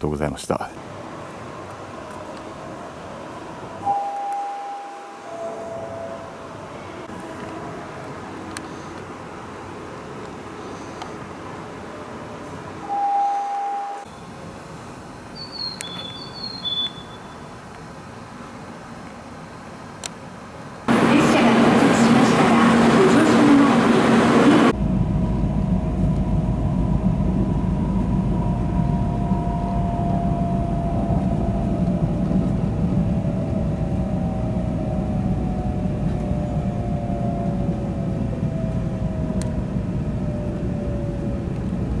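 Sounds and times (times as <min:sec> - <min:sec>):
loud rushing noise on platform: 0:20.7 - 0:42.0
train running rumble: 0:20.9 - 0:42.0
faint motor whine: 0:24.8 - 0:42.0.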